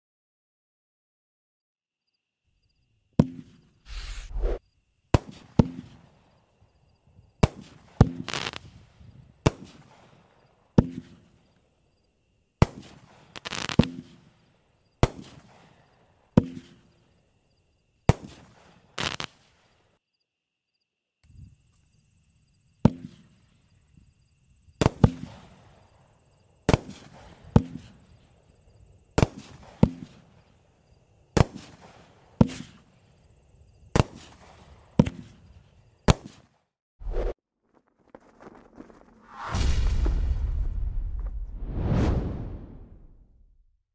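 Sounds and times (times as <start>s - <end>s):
fireworks hiss: 3.9s - 4.6s, 7.5s - 9.9s, 12.8s - 14.2s, 18.2s - 19.5s
fireworks bangs: 36.1s - 43.6s.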